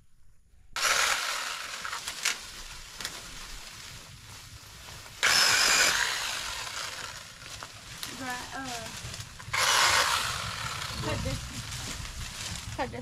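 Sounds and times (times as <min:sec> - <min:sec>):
small gasoline engine running: 0:00.8 - 0:02.2, 0:05.2 - 0:07.4, 0:09.5 - 0:11.8.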